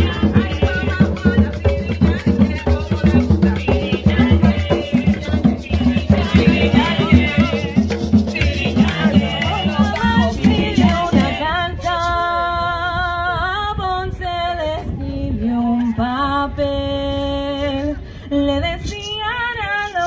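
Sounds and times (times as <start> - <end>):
hand drums fast rhythm: 0.0 - 11.4
group singing unaccompanied: 0.0 - 13.0.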